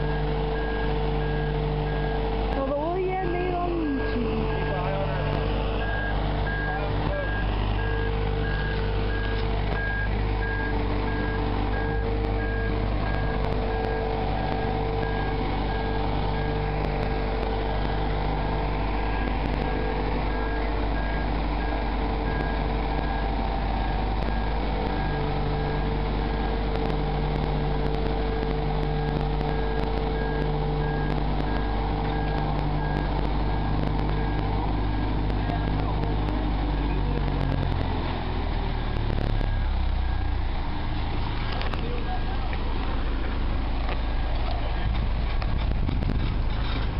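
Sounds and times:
warning beeper: 0.0s - 37.8s
travel lift engine running: 0.0s - 46.9s.

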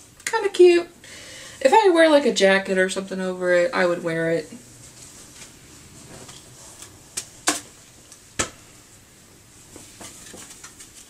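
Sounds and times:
fabric rustling: 4.6s - 8.1s.

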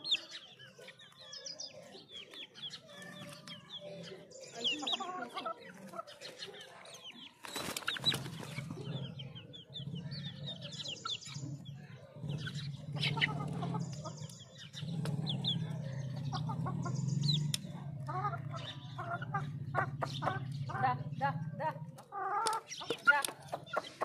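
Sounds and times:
chicks peeping: 0.0s - 24.0s
wing flapping: 7.4s - 8.8s.

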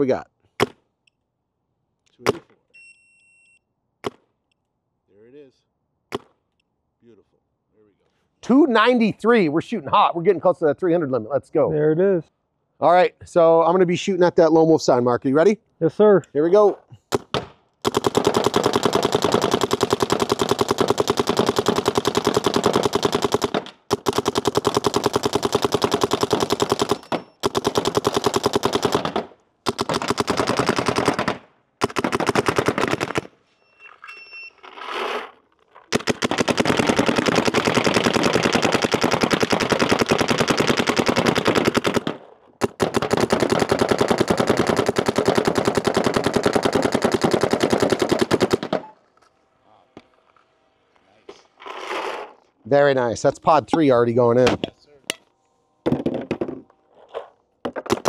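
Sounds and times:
paintball marker rapid firing: 17.1s - 33.3s, 35.9s - 48.9s.

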